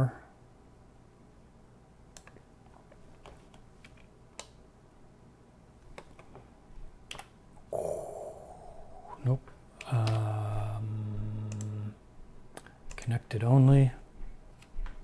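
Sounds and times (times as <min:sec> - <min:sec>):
keyboard and mouse clicks: 0:02.1 - 0:02.5, 0:05.8 - 0:06.4, 0:07.1 - 0:07.4, 0:11.5 - 0:11.8, 0:12.6 - 0:13.2
breathy noise burst: 0:07.7 - 0:11.1.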